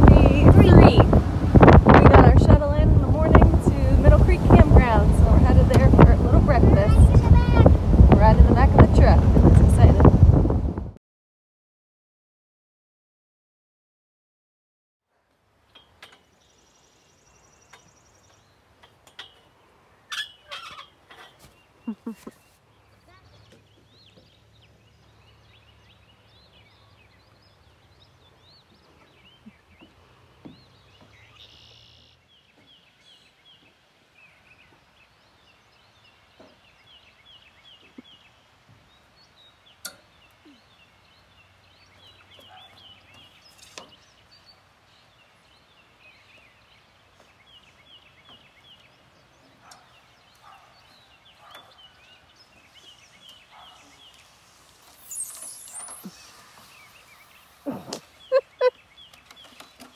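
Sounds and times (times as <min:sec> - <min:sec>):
fast rattling bird call: 0:20.1 - 0:22.2.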